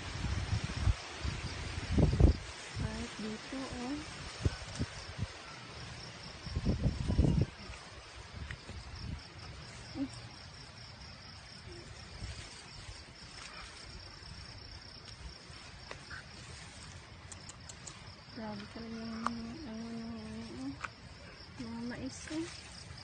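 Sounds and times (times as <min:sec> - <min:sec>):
low rumbling microphone noise: 0:00.0 - 0:05.4
insects chirring: 0:00.0 - 0:23.0.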